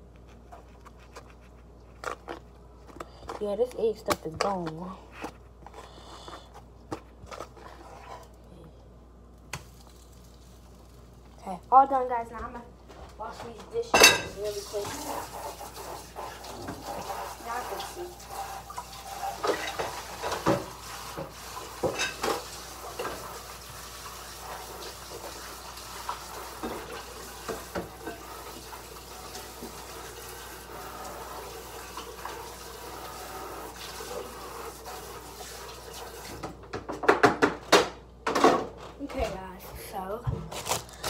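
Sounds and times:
dishes clinking: 0:13.9 - 0:14.4, 0:21.8 - 0:22.4
faucet running: 0:14.1 - 0:36.5.

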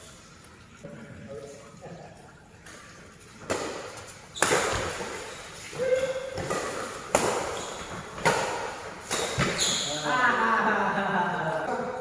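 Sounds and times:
racket hitting shuttlecock: 0:03.4 - 0:09.9.

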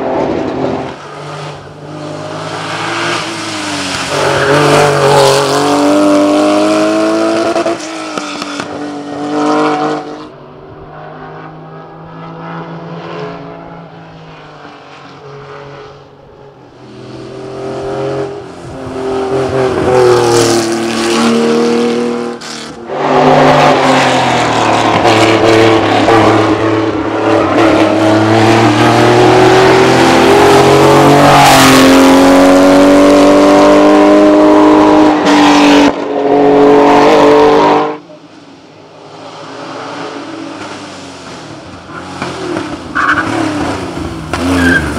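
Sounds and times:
racing car engine revving: 0:16.9 - 0:38.0.

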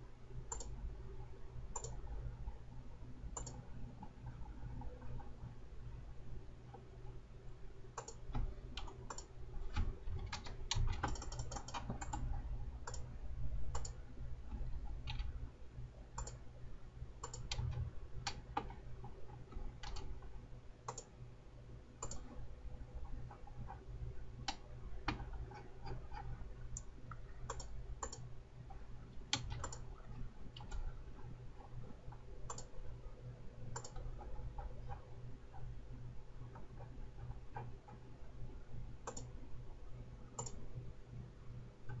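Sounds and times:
steady low hum: 0:00.0 - 0:42.0
computer mouse clicks: 0:00.5 - 0:00.8, 0:01.7 - 0:02.0, 0:03.3 - 0:05.3, 0:07.9 - 0:13.1, 0:13.7 - 0:15.3, 0:16.1 - 0:16.4, 0:17.2 - 0:20.1, 0:20.8 - 0:21.1, 0:22.0 - 0:22.4, 0:24.4 - 0:28.3, 0:29.3 - 0:29.9, 0:30.5 - 0:32.8, 0:33.7 - 0:35.7, 0:39.0 - 0:39.4, 0:40.3 - 0:40.6
keyboard keystrokes: 0:08.0 - 0:13.0, 0:19.5 - 0:20.1, 0:29.3 - 0:29.8, 0:32.5 - 0:32.7, 0:33.7 - 0:34.3.

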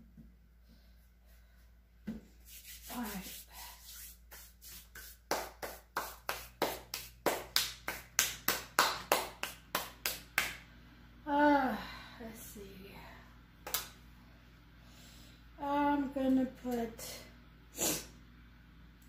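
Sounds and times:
hands rubbing together: 0:02.4 - 0:10.5.

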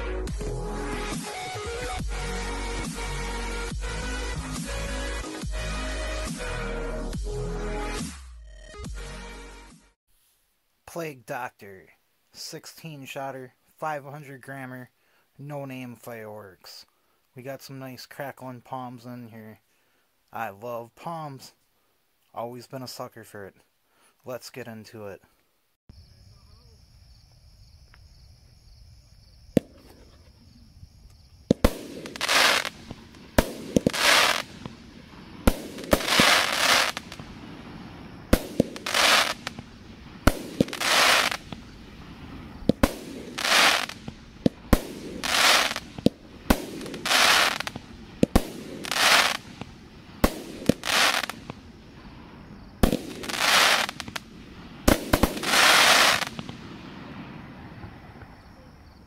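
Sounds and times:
crackling firework bursts: 0:29.5 - 0:30.4, 0:31.1 - 0:58.5
firework launch thumps: 0:29.6 - 0:30.4, 0:31.4 - 0:37.6, 0:38.3 - 0:41.8, 0:42.5 - 0:51.6.

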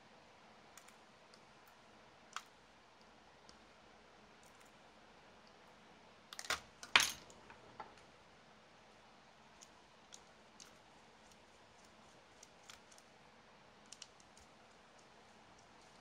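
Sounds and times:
tools and parts clattering: 0:06.4 - 0:07.4.

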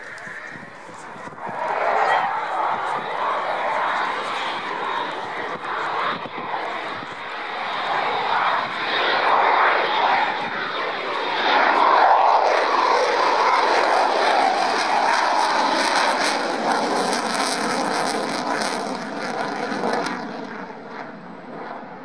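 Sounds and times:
jet engine roar overhead: 0:00.0 - 0:22.0.

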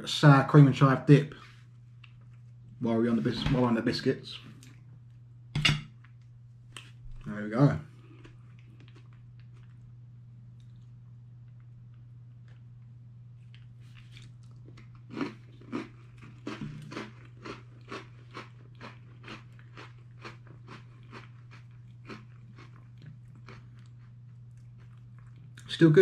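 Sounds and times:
person chewing crunchy biscuit: 0:08.0 - 0:25.7.

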